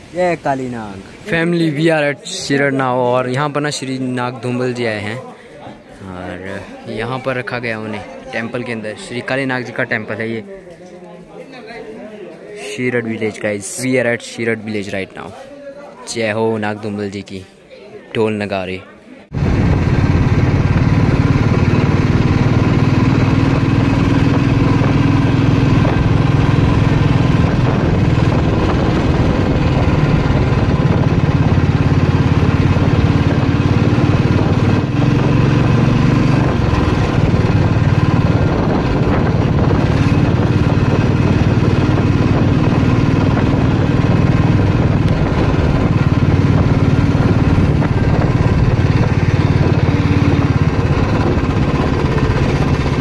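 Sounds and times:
motorcycle engine running: 19.3 - 53.0.

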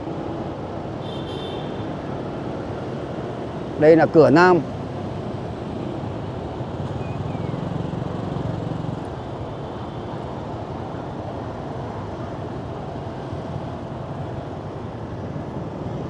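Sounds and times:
motorbike and car engines passing: 3.5 - 9.6.

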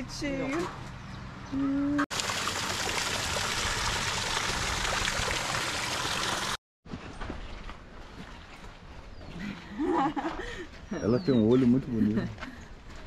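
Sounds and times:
small waterfall splashing into pond: 2.1 - 6.6.

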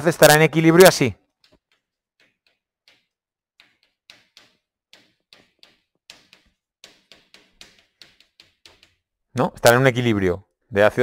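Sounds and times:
chalk writing on a chalkboard: 1.2 - 9.1.

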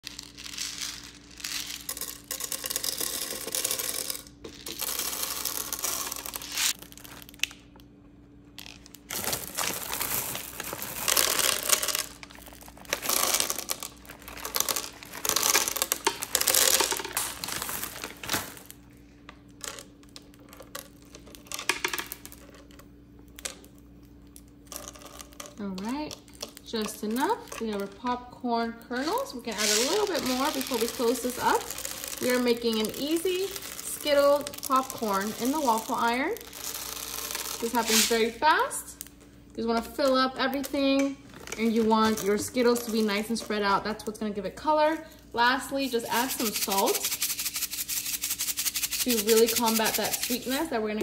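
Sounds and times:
candies clattering onto plates: 0.0 - 6.5, 29.0 - 38.3
popcorn kernels pattering on metal: 0.0 - 7.6, 8.8 - 18.8, 28.8 - 39.0, 45.6 - 51.0
plastic bag crinkling: 0.0 - 7.7, 8.4 - 23.7, 28.9 - 39.2, 40.0 - 44.2, 45.6 - 50.8.

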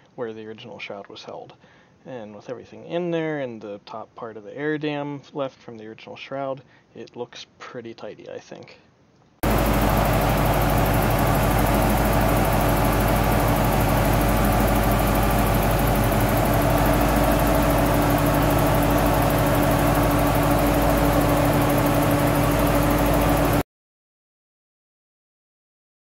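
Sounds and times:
car engine idling: 9.4 - 23.6
electric radiator fan running: 9.4 - 23.6.

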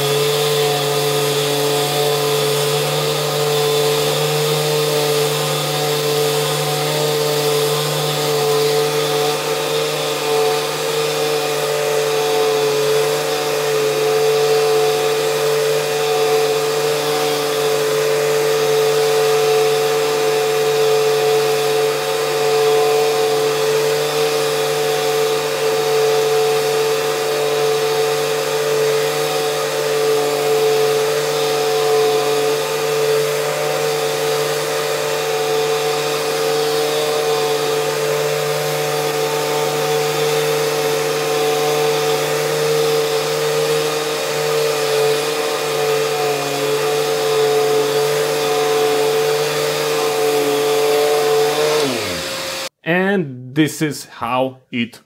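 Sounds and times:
orbital sander running: 0.0 - 52.8
vacuum cleaner running: 0.0 - 52.8.

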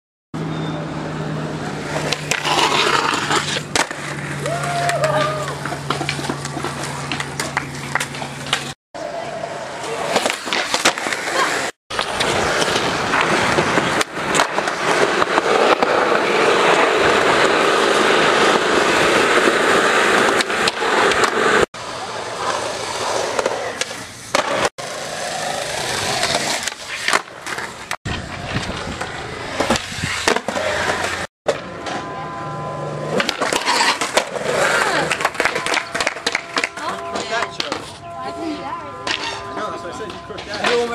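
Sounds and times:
skateboard wheels rolling on concrete: 0.4 - 40.9
skateboard grinding on ledges: 1.4 - 38.0
skateboard tail pops clacking: 33.1 - 37.8.

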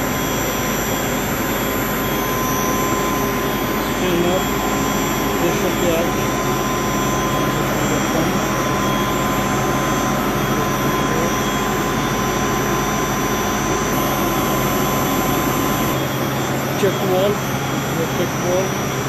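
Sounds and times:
thin steady whine: 0.0 - 19.0
water pumps humming: 0.0 - 19.0.

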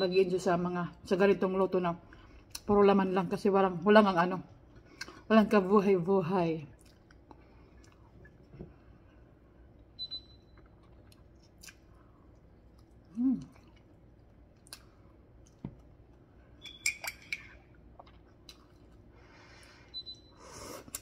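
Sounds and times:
soft chewing: 6.7 - 9.9, 10.5 - 16.4, 17.4 - 19.7.

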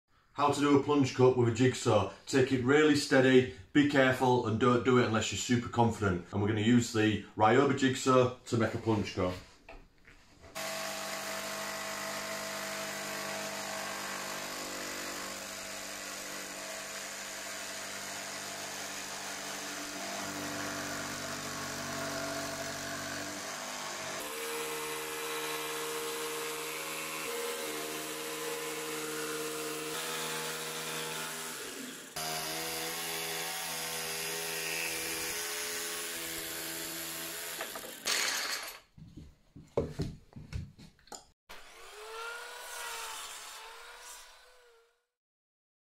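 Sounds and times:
jigsaw sawing through wood: 10.5 - 38.8, 41.5 - 45.0.

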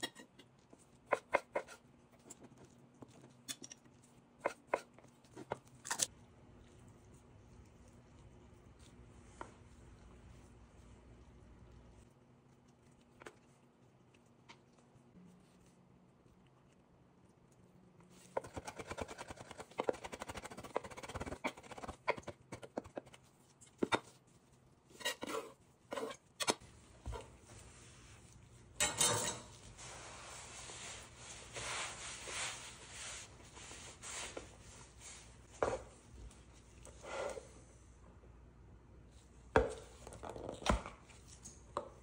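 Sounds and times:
knife scraping cutting board: 1.1 - 2.4, 24.9 - 27.9, 36.8 - 37.5.

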